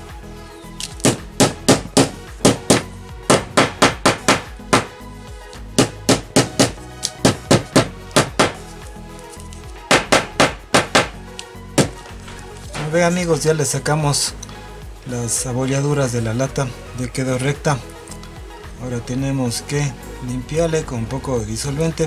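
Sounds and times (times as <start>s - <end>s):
rubber mallet striking sheet metal: 1.0s - 5.0s, 5.8s - 8.6s, 9.9s - 11.2s, 11.8s - 12.0s.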